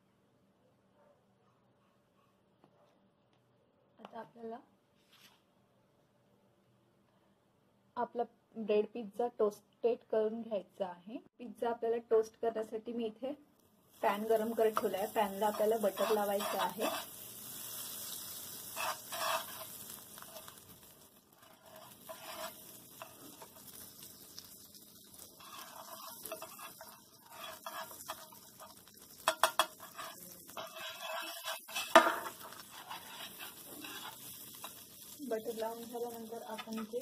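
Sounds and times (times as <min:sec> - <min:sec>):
butter sizzling in frying pan: 0:13.9 - 0:37.0
utensil scraping pan: 0:14.1 - 0:24.5, 0:25.2 - 0:37.0
utensil knocking on pan: 0:29.2 - 0:29.8, 0:31.8 - 0:32.5.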